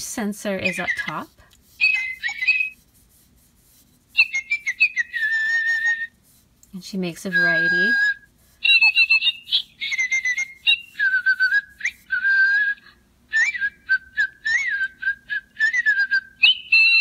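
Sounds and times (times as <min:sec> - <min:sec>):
electronic toy bird song: 0:01.8 - 0:02.8, 0:04.2 - 0:06.1, 0:07.4 - 0:12.0, 0:13.4 - 0:17.0.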